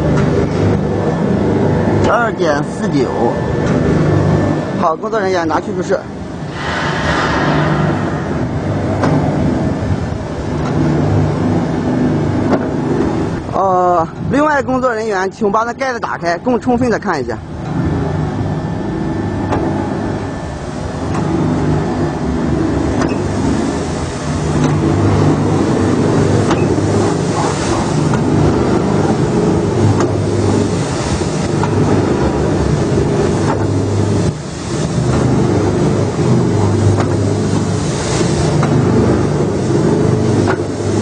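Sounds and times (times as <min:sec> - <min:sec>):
machine motor hum: 0:00.0 - 0:41.0
brief hisses: 0:06.5 - 0:08.4.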